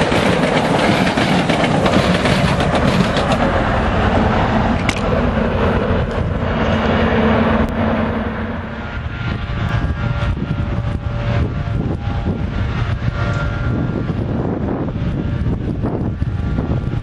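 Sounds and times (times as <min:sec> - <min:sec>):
distant diesel train rumble: 0:00.0 - 0:17.0
wind gusting on microphone: 0:00.0 - 0:17.0.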